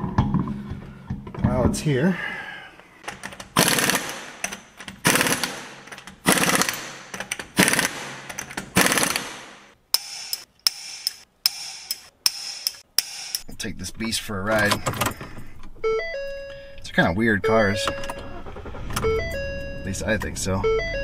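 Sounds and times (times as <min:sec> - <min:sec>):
air impact wrench rattling: 0:03.0 - 0:13.4.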